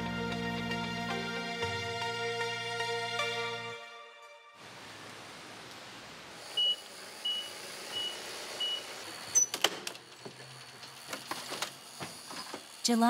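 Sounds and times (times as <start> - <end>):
steady outdoor hiss: 4.6 - 9.4
truck reversing alarm beeping: 6.5 - 9.6.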